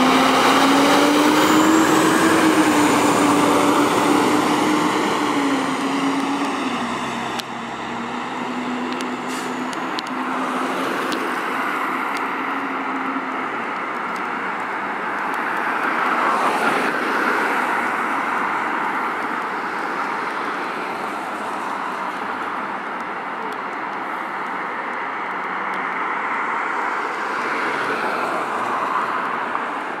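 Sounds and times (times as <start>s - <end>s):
diesel engine pulling away: 0.0s - 10.4s
car passing: 0.0s - 13.2s, 26.3s - 29.8s
street traffic noise: 0.0s - 30.0s.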